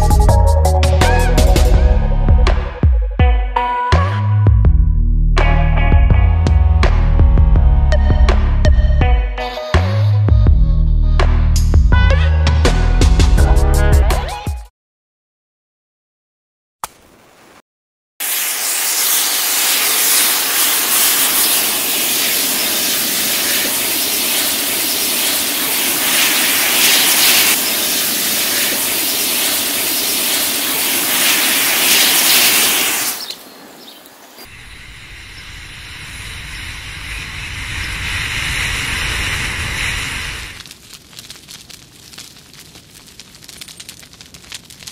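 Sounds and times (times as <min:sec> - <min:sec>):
low rumble: 0:04.6 - 0:09.0
match heads fizzing: 0:18.2 - 0:33.4.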